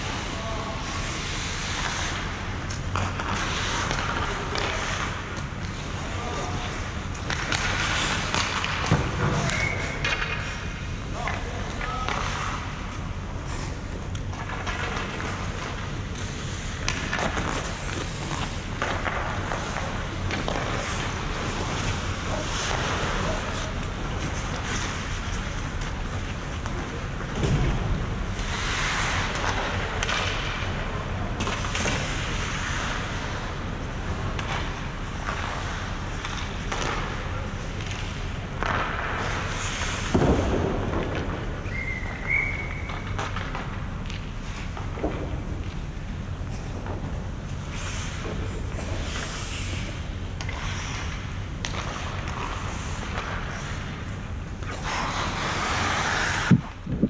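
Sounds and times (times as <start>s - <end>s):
hockey sticks and pucks clattering: 0.0s - 57.0s
skates scraping ice: 0.0s - 57.0s.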